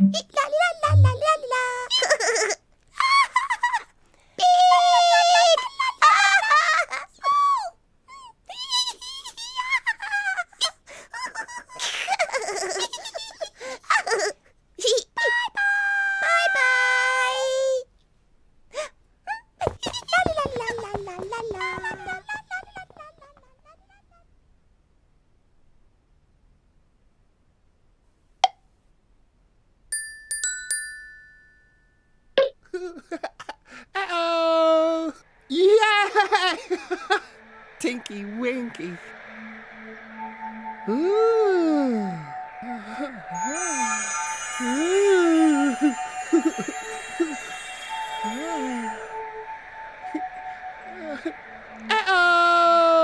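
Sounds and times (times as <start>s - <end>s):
bell-like chime notes: 39.1s - 51.9s.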